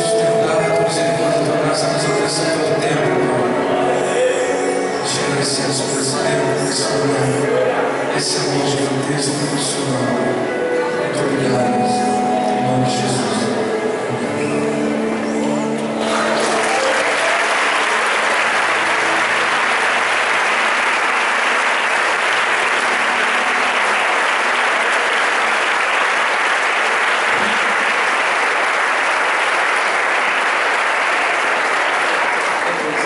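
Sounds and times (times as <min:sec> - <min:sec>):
crowd applauding: 0:14.3 - 0:33.0.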